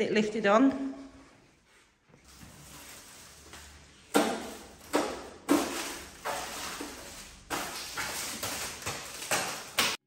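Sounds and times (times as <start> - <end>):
plastic wrap ripping: 2.2 - 10.0.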